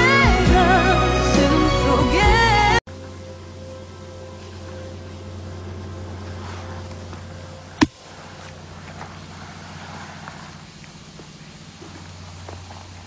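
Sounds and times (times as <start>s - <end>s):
steady low hum: 2.8s - 13.0s.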